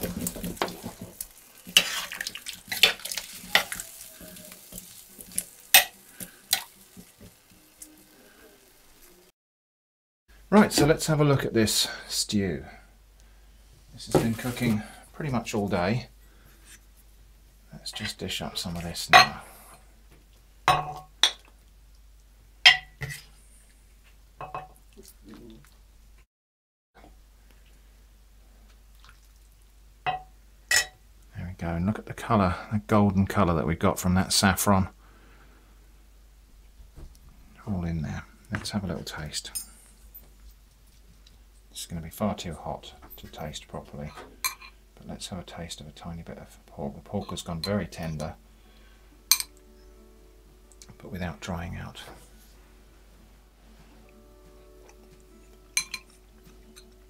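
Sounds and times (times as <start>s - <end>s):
stirring stew: 0.0s - 8.3s
metal spoon scraping a pot: 1.6s - 4.1s
spoon clinking against pot and bowl: 22.7s - 23.2s, 44.4s - 44.8s, 49.3s - 49.6s, 55.8s - 56.9s.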